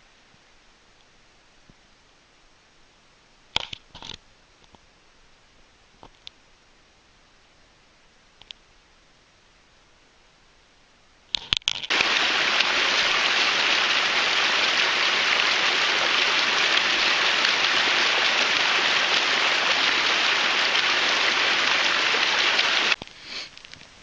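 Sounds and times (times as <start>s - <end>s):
water splashing over rocks: 11.9s - 23.0s.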